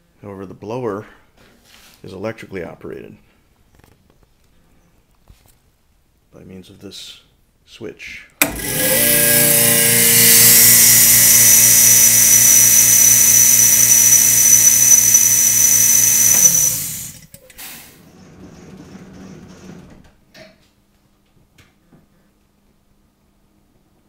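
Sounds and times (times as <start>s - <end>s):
electric air blower humming and whining: 8.4s - 17.3s
motor winding down: 8.4s - 17.3s.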